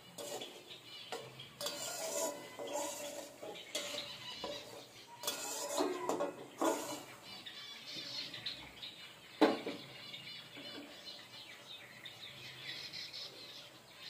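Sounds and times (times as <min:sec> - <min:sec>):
metal spatula scraping pan: 0:00.0 - 0:07.4.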